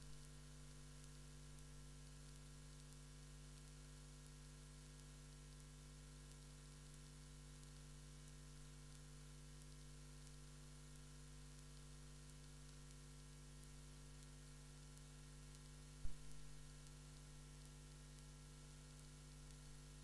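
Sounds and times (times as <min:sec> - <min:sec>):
electrical hum and hiss: 0:00.0 - 0:20.0.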